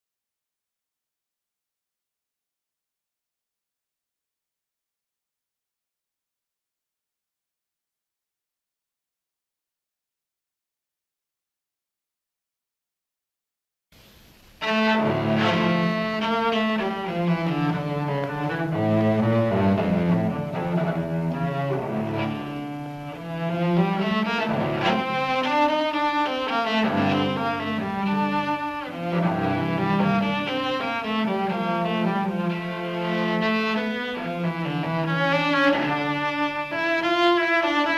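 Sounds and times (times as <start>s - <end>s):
bowed string music: 14.0s - 37.9s
low cello-like line: 14.6s - 37.9s.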